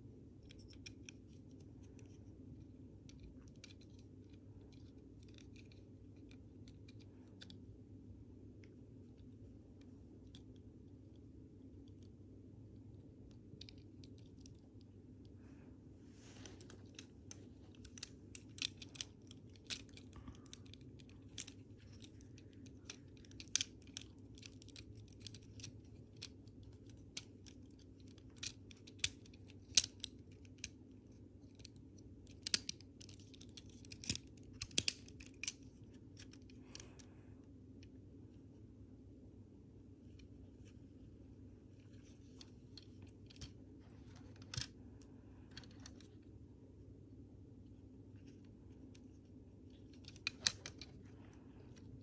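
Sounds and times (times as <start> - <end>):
faint low hum: 0.0 - 52.0
plastic parts clicking together: 16.4 - 37.1, 41.8 - 46.2, 49.7 - 52.0.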